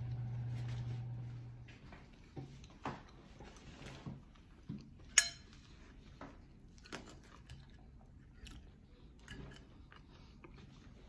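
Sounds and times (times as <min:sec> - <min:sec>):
person chewing: 0:04.3 - 0:11.0
tableware clinking: 0:05.1 - 0:05.6.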